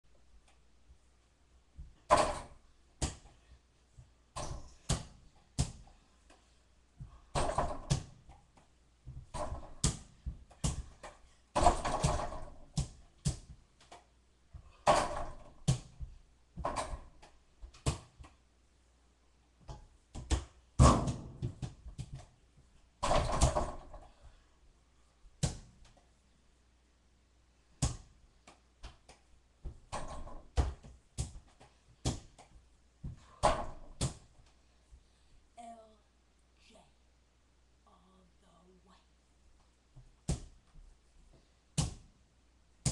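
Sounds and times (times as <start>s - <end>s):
small ball bouncing against door: 1.8s - 3.3s, 7.0s - 18.4s, 19.6s - 22.4s, 23.0s - 24.2s, 27.8s - 34.3s.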